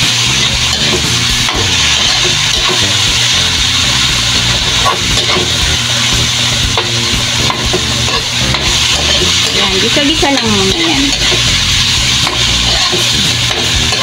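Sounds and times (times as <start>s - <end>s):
food sizzling in oil: 0.0s - 14.0s
metal spatula scraping pan: 0.3s - 3.0s, 4.7s - 5.6s, 6.8s - 14.0s.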